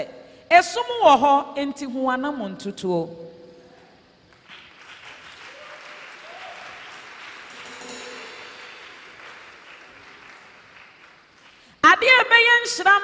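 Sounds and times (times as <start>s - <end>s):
congregation applauding: 4.3s - 11.8s.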